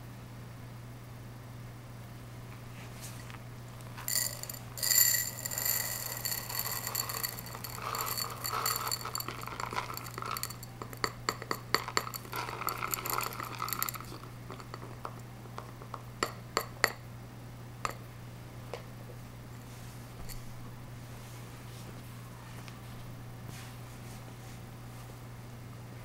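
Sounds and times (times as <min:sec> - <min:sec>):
small pieces clinking into glass cup: 0:04.0 - 0:17.0.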